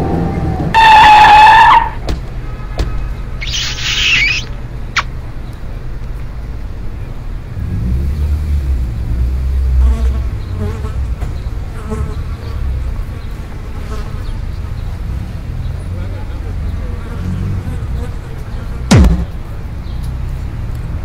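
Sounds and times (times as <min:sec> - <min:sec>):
vehicle engine rumble: 0:00.0 - 0:21.0
cartoon flies buzzing: 0:03.4 - 0:05.1.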